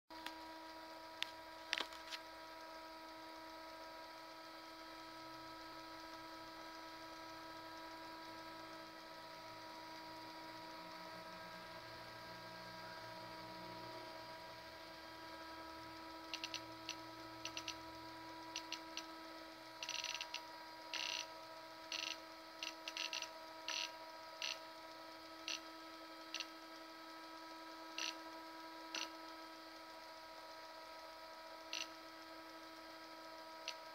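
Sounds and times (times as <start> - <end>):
steady electrical hum: 0.1 - 33.9
sharp clicks: 16.3 - 17.8, 18.6 - 19.1.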